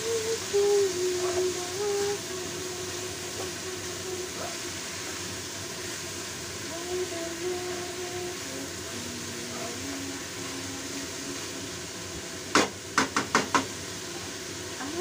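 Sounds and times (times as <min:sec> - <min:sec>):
frying hiss: 0:00.0 - 0:15.0
wooden spatula knocking on wok: 0:12.5 - 0:13.7.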